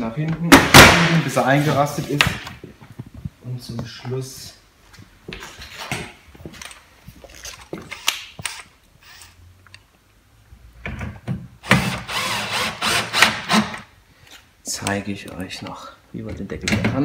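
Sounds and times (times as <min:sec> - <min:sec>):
cordless drill driving screws: 0:11.6 - 0:13.8.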